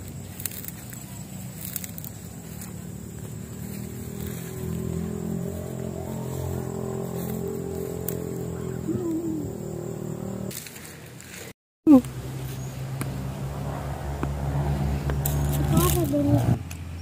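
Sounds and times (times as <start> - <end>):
footsteps in grass: 0.0 - 8.8, 10.5 - 11.6
vehicle engine running: 0.0 - 11.2, 11.9 - 17.0.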